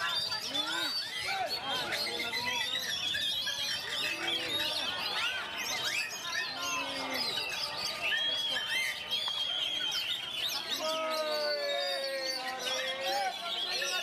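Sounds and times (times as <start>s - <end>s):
birds singing: 0.0s - 14.0s.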